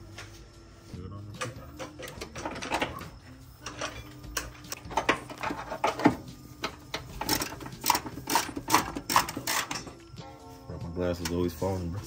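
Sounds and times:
metal tools clicking and clanking: 1.4s - 10.1s.

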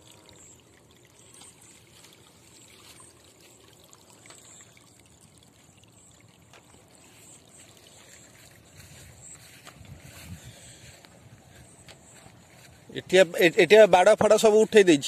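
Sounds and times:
faint water trickle: 0.0s - 15.0s.

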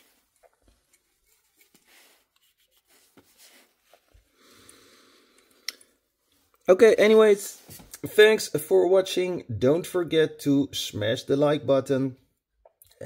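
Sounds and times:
cloth rubbing: 0.0s - 4.3s.

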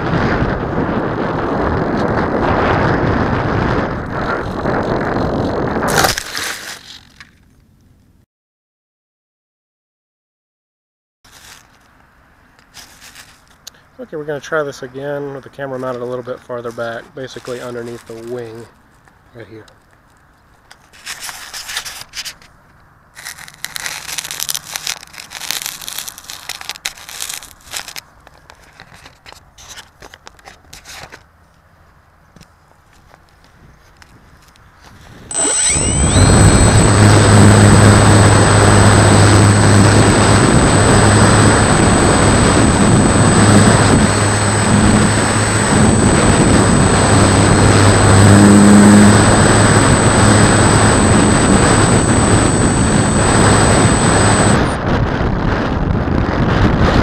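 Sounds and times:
wind buffeting microphone: 0.0s - 6.0s, 33.4s - 57.0s
plane crunching into grass: 5.9s - 7.4s, 11.3s - 11.9s, 12.6s - 13.6s, 15.7s - 18.7s, 20.8s - 22.6s, 23.2s - 31.3s
model airplane motor: 23.2s - 28.0s, 35.3s - 54.8s.

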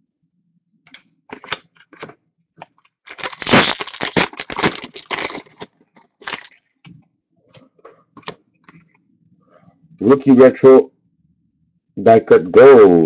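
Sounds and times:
card pack wrapper crinkling: 3.1s - 6.6s.

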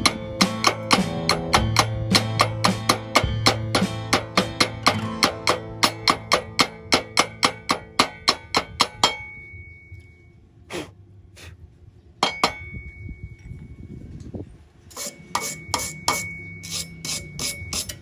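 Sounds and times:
metal tapping on steel tube: 0.0s - 10.1s, 12.2s - 13.0s, 14.9s - 18.0s
thin high ringing note: 9.1s - 10.4s, 14.9s - 18.0s.

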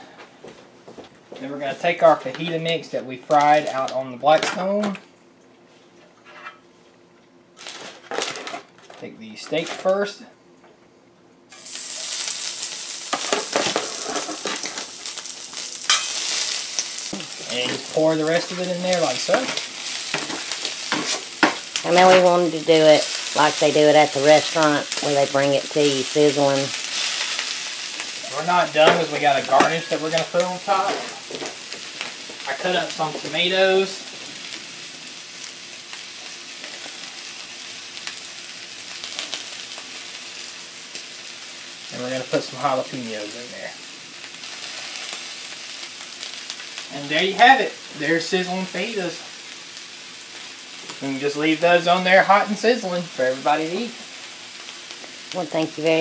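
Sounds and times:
steak sizzling in skillet: 11.5s - 56.0s.

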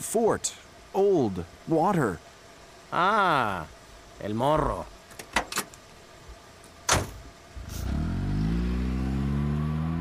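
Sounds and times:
car door slamming: 6.9s - 7.2s
car engine accelerating away: 7.6s - 10.0s.

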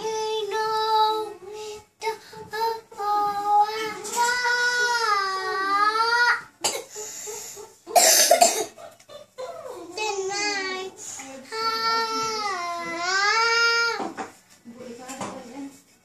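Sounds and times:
child singing: 0.0s - 6.5s, 9.9s - 14.1s
loud cough: 7.9s - 8.8s.

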